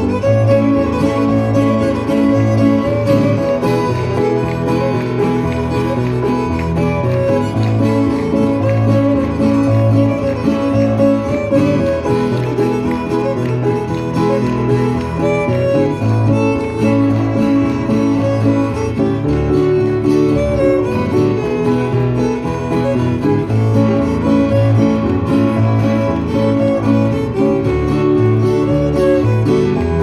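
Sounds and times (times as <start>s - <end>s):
fiddle melody: 0.0s - 30.0s
piano accompaniment: 0.0s - 30.0s.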